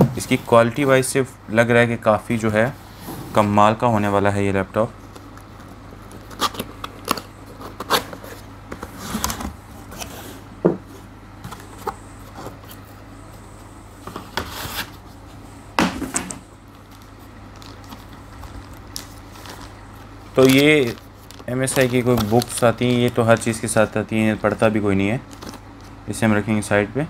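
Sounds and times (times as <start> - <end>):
steady low hum: 0.0 - 27.0
cardboard and plastic wrap rustling: 16.7 - 24.6, 25.2 - 25.9.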